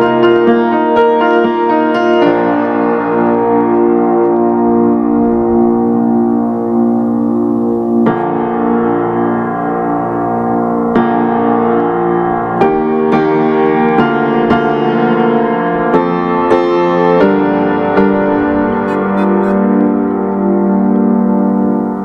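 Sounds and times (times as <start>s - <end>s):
electric piano chords: 0.0s - 22.0s
single piano notes: 15.5s - 22.0s.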